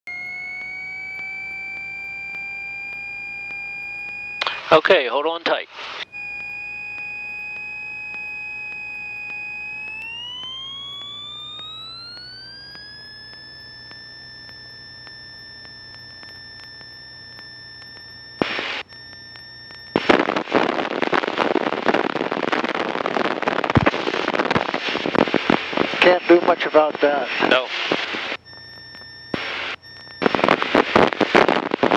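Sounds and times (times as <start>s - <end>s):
light aircraft engine whine: 0.1s - 31.8s
loud crackling rush of noise: 19.9s - 28.4s, 29.3s - 31.9s.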